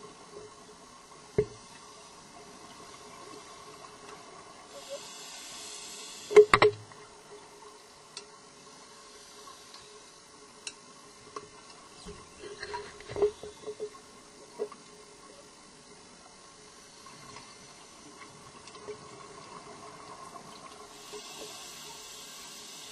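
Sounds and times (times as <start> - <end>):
faint steady hum: 0.0 - 22.9
short hiss underwater: 4.7 - 6.7, 20.9 - 22.9.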